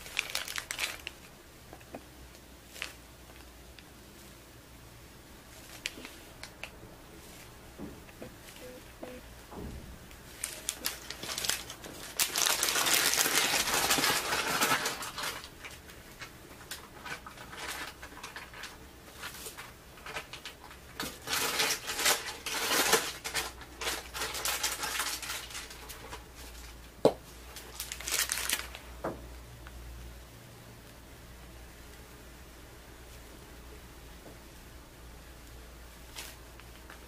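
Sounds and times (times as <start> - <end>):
plastic bag crinkling: 0.0 - 2.0, 2.6 - 3.6, 5.5 - 7.6, 10.2 - 26.8, 27.4 - 28.9, 36.0 - 37.0.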